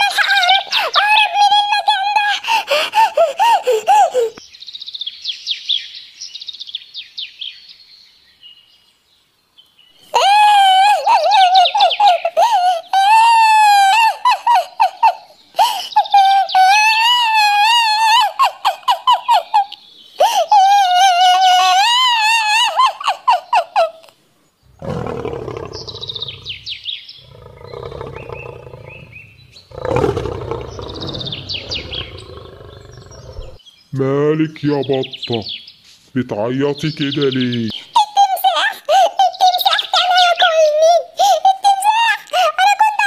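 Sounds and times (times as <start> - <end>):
cartoon duck crying: 0.0 - 4.4, 10.2 - 24.1
lion roaring: 24.7 - 33.6.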